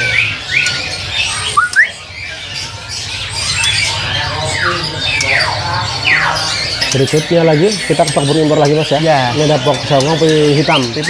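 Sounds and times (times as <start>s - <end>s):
caged songbirds chirping: 0.0s - 11.0s.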